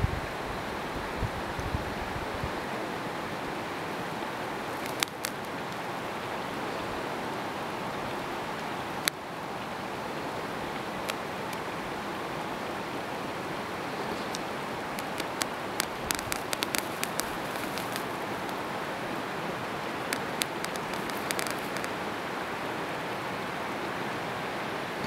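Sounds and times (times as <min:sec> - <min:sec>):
rushing outdoor noise: 0:00.0 - 0:25.0
sharp clicks: 0:04.8 - 0:05.5, 0:14.2 - 0:18.6, 0:20.0 - 0:21.9.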